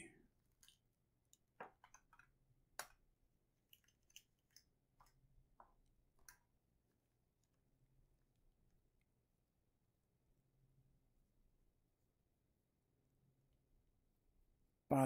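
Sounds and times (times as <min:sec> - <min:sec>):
plastic clicks and taps: 0:00.6 - 0:03.0.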